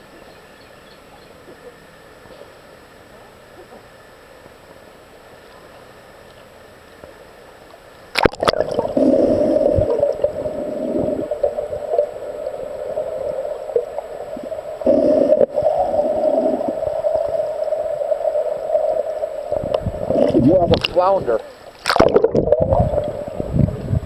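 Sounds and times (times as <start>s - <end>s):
dull gurgling hum: 0.0s - 24.0s
muffled underwater noise: 8.2s - 24.0s.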